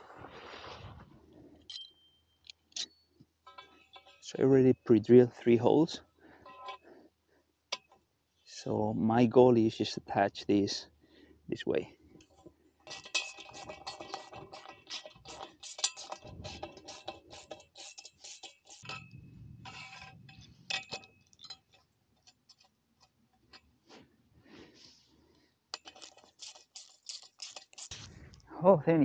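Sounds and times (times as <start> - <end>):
metal hardware clinking: 18.2 - 21.8.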